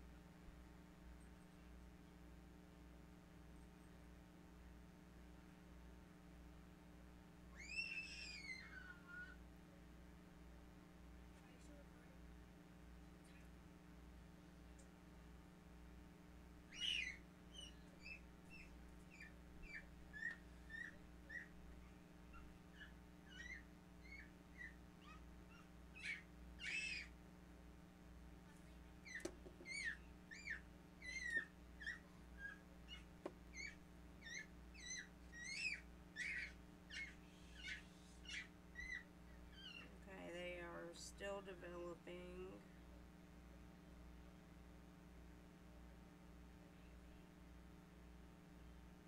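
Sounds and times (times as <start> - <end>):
faint steady hum: 0.0 - 49.0
bird squawking and chirping: 7.6 - 9.3, 16.7 - 21.5, 22.8 - 27.1, 29.0 - 39.9.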